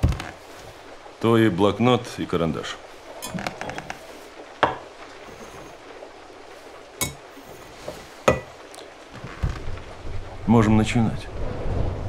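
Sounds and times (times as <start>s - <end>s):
mugs knocking on wooden table: 4.6s - 4.9s, 7.8s - 8.6s.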